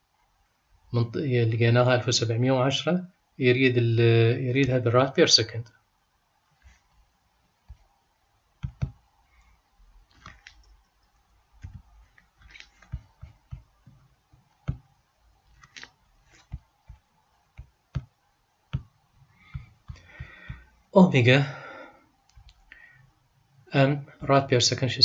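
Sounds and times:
computer mouse clicks: 10.1s - 14.8s, 15.5s - 18.1s, 22.3s - 22.7s.

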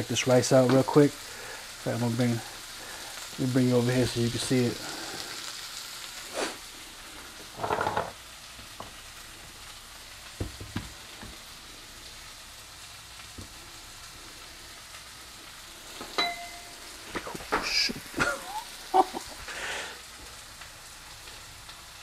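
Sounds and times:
onions sizzling in a frying pan: 0.0s - 22.0s
pot lid clinking: 16.2s - 16.7s.

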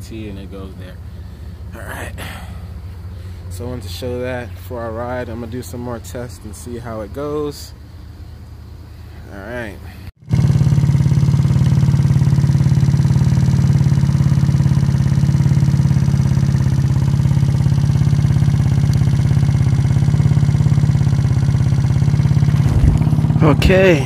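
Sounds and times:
scooter engine idling: 0.0s - 5.4s, 10.2s - 24.0s.

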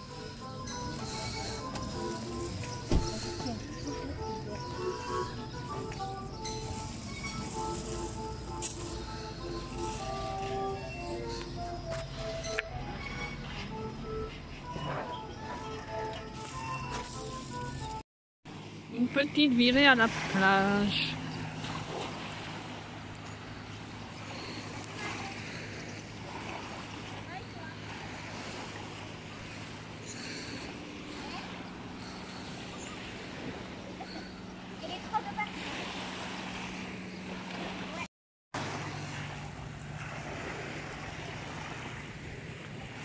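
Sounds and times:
small waves lapping on sand: 18.5s - 43.0s.

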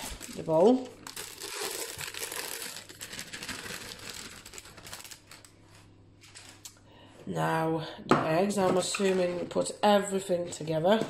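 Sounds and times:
packet crinkling: 0.0s - 6.8s.

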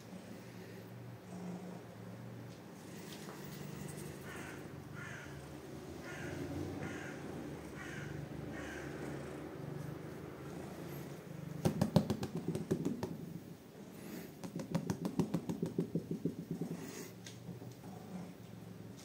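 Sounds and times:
rapid light tapping: 11.6s - 13.4s, 14.3s - 17.1s.

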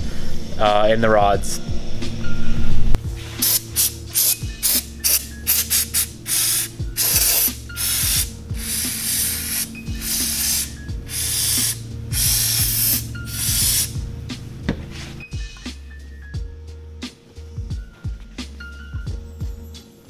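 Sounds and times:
aerosol spray hissing: 3.2s - 14.0s.

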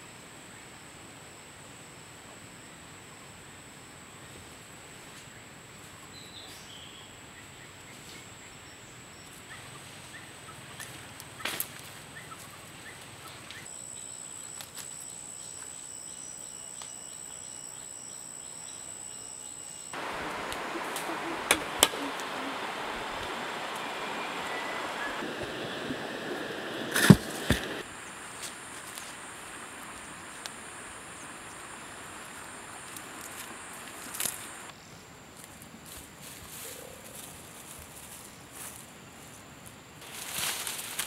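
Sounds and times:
high-pitched insect drone: 13.7s - 21.2s.

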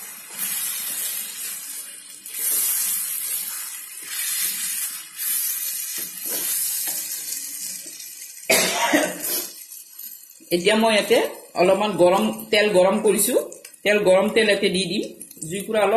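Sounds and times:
paste sizzling in a pan: 0.0s - 10.5s.

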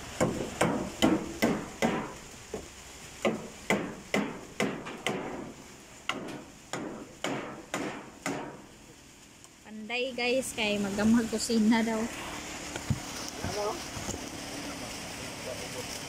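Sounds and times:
hand tool chopping wood: 3.2s - 5.5s, 6.1s - 8.6s.

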